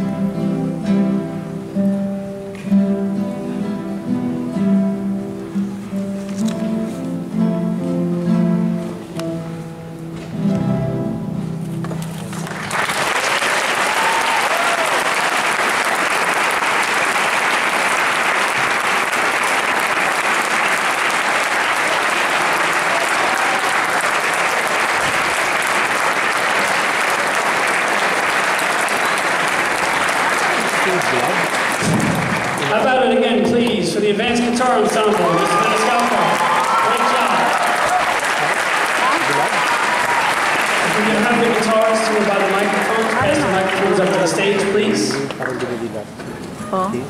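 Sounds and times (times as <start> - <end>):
classical guitar ensemble playing: 0.0 - 12.7, 25.0 - 35.4, 40.8 - 47.0
audience applause: 11.9 - 46.0
audience cheering: 12.5 - 32.9, 34.2 - 45.2.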